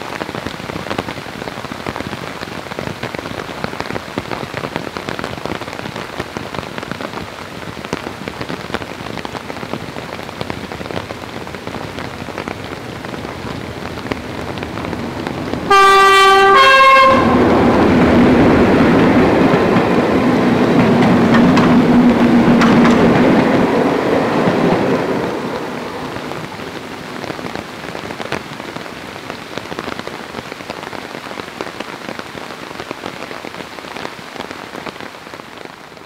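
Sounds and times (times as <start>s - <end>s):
steady rain: 0.0s - 36.0s
two-tone train horn: 15.7s - 17.8s.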